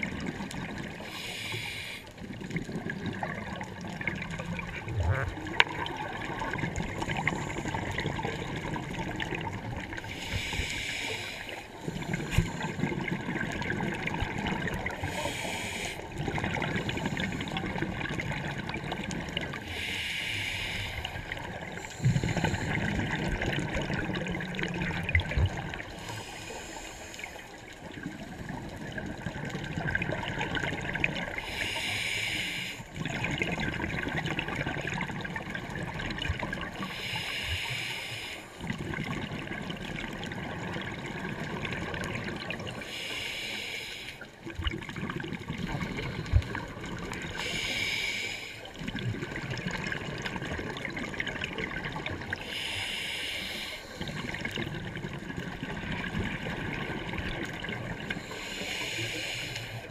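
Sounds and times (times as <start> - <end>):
exhaled bubbles burbling: 0.0 - 1.1, 2.2 - 10.1, 11.8 - 15.1, 16.0 - 19.6, 21.0 - 26.0, 27.6 - 31.5, 32.9 - 36.9, 38.6 - 42.8, 44.4 - 47.4, 48.6 - 52.7, 53.9 - 58.3
regulator inhalation hiss: 1.0 - 2.1, 10.0 - 12.6, 15.0 - 16.1, 19.6 - 22.8, 25.9 - 27.4, 31.4 - 32.9, 36.9 - 38.6, 42.8 - 44.3, 47.4 - 48.7, 52.4 - 54.3, 58.2 - 59.9.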